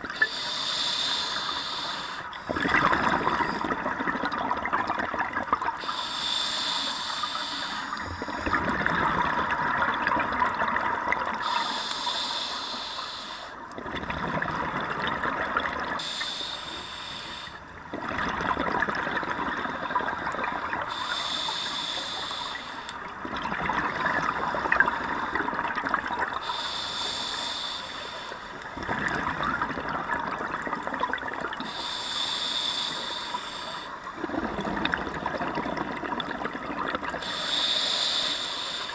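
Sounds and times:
exhaled air bubbling: 0:00.0 - 0:38.9
regulator hissing inhale: 0:00.2 - 0:02.5, 0:05.8 - 0:08.6, 0:11.4 - 0:13.8, 0:16.0 - 0:17.7, 0:20.8 - 0:23.1, 0:26.4 - 0:28.7, 0:31.6 - 0:34.1, 0:37.2 - 0:38.9.

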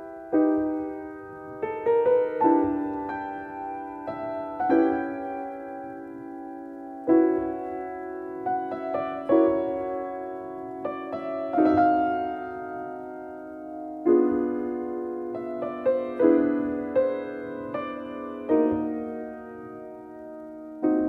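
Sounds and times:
slow solo piano piece: 0:00.0 - 0:21.0.

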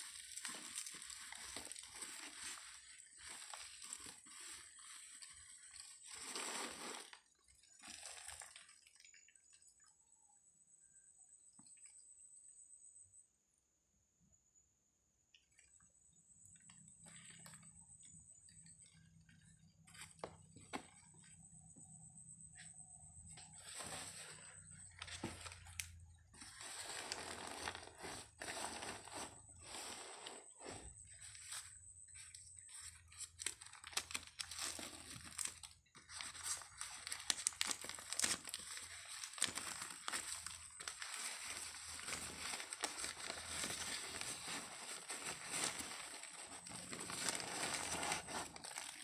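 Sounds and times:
paper and plastic rustling: 0:00.0 - 0:09.1, 0:22.6 - 0:49.0.

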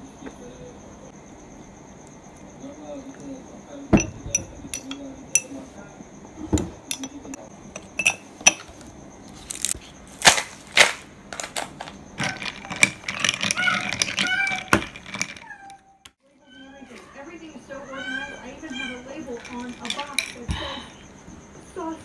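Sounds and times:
cricket chirping: 0:00.0 - 0:22.0
spoon clinking against glass: 0:03.9 - 0:05.6, 0:06.8 - 0:08.7, 0:18.9 - 0:20.6.

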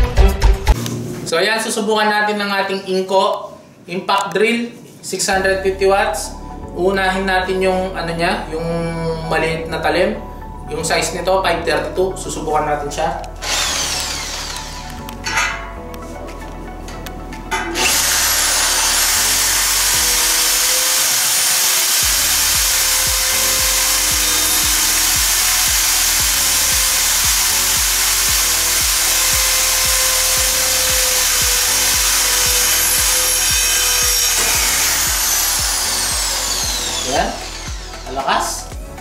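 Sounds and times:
drill boring through steel: 0:13.4 - 0:15.6, 0:17.7 - 0:38.8.

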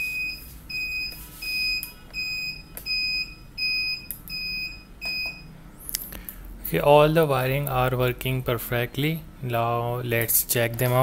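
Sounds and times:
high single-tone buzzer beeps: 0:00.0 - 0:05.6.

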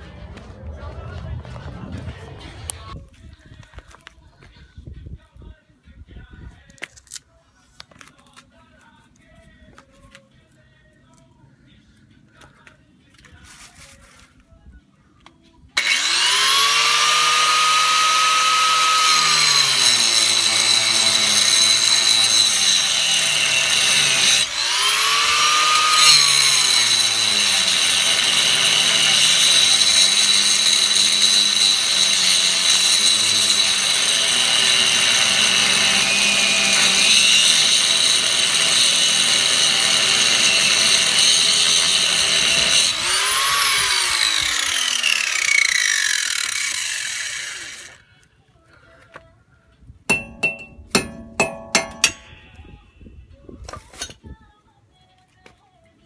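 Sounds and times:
angle grinder grinding metal: 0:15.8 - 0:48.0.

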